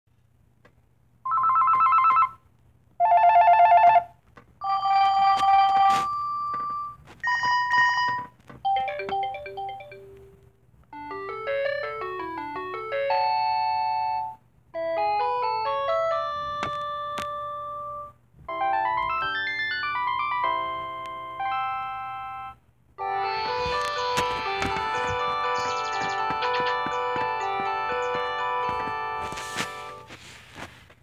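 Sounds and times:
beeping melodies: 0:05.7 - 0:30.1
warbling electronic ring tones: 0:21.4 - 0:30.0.

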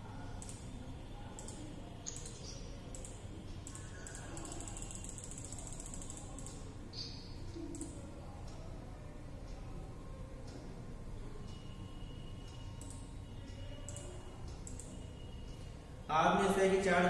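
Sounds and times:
scroll wheel ticks: 0:00.4 - 0:00.6, 0:01.4 - 0:06.7, 0:12.5 - 0:15.8
computer mouse clicking: 0:00.4 - 0:00.7, 0:01.3 - 0:08.6, 0:12.5 - 0:13.1, 0:13.8 - 0:15.7.

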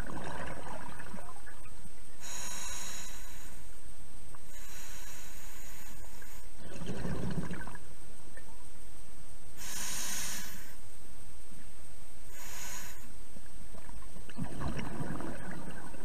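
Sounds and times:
exhaled bubbles underwater: 0:00.0 - 0:01.9, 0:06.6 - 0:08.6, 0:13.8 - 0:16.0
regulator hissing inhale: 0:02.2 - 0:03.8, 0:04.4 - 0:06.6, 0:09.6 - 0:10.9, 0:12.3 - 0:13.2.

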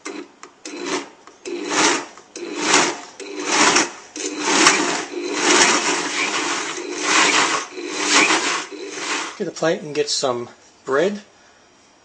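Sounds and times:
blender motor pulsing: 0:00.7 - 0:09.4.

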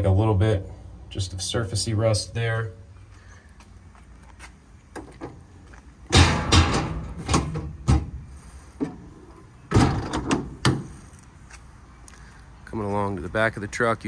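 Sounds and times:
metal doors and latches clacking: 0:06.1 - 0:08.2, 0:08.8 - 0:11.0.

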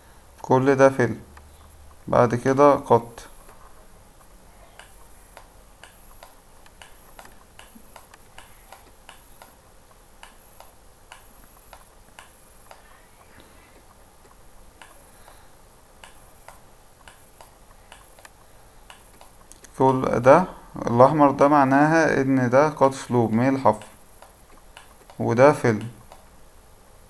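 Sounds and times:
low room hiss: 0:00.0 - 0:27.0
computer mouse clicks: 0:03.4 - 0:09.6, 0:10.2 - 0:15.4, 0:16.0 - 0:20.1, 0:23.7 - 0:26.3.

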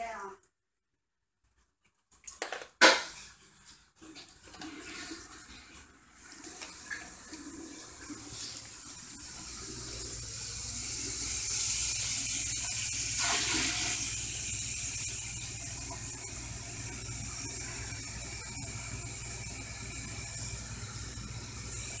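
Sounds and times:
tap water filling metal bowl: 0:06.2 - 0:22.0.

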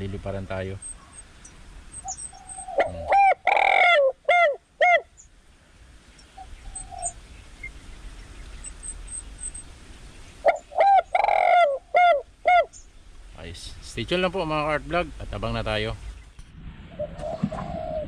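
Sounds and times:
dove cooing through speaker: 0:02.4 - 0:05.0, 0:10.5 - 0:12.7, 0:17.0 - 0:18.0.

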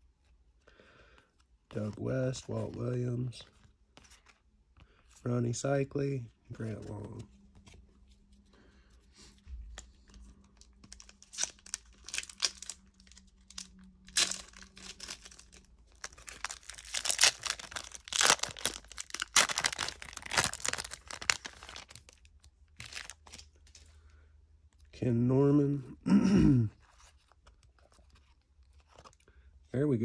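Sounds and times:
foil wrapper tearing and crinkling: 0:10.8 - 0:23.5.

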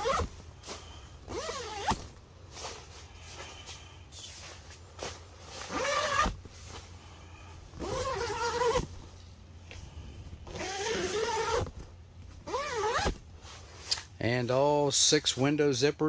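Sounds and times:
tent zipper being pulled: 0:00.0 - 0:00.3, 0:01.3 - 0:02.1, 0:05.6 - 0:06.4, 0:07.7 - 0:08.9, 0:10.4 - 0:11.8, 0:12.4 - 0:13.2.

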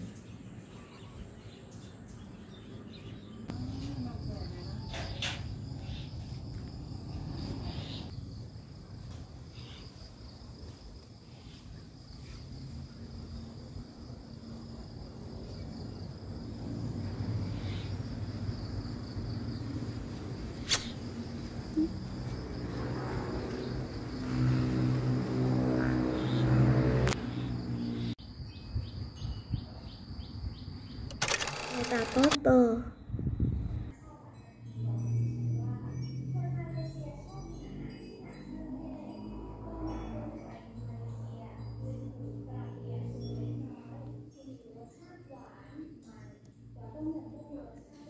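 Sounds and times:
insects droning: 0:02.5 - 0:33.6
sharp click: 0:20.6 - 0:21.0, 0:31.1 - 0:32.4.

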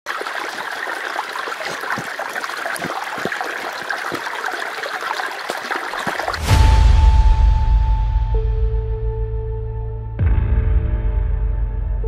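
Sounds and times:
stream trickling over stones: 0:00.1 - 0:06.7.

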